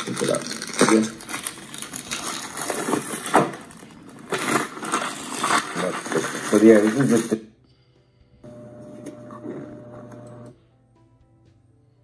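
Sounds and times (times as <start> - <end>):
plastic pouches crinkling: 0.0 - 7.4.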